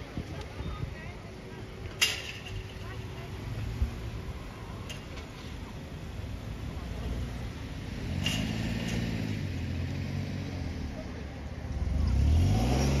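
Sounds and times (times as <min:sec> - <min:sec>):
car engines passing: 0:01.4 - 0:13.0
car engine revving: 0:11.8 - 0:13.0.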